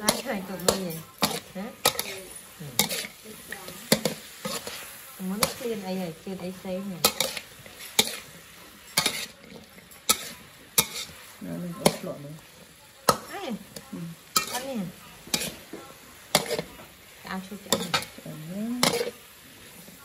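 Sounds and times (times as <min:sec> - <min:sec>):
food sizzling: 0:00.0 - 0:20.0.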